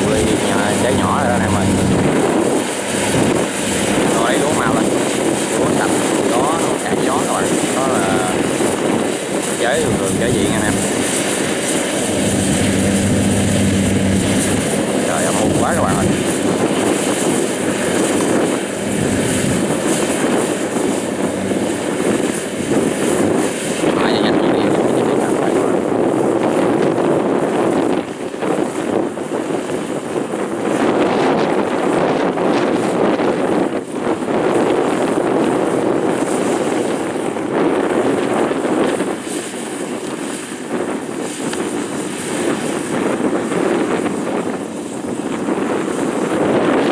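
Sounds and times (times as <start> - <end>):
combine harvester running: 0.0 - 25.6
wind buffeting microphone: 0.0 - 46.9.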